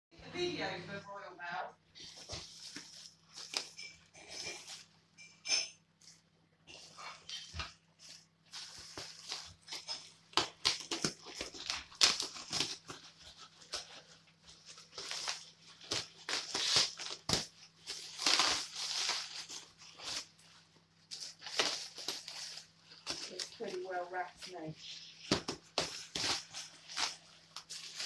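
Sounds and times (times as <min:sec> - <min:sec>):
plastic wrapping crinkling: 0:02.0 - 0:28.0
packing tape ripping: 0:08.6 - 0:20.4, 0:21.1 - 0:24.0, 0:25.2 - 0:28.0.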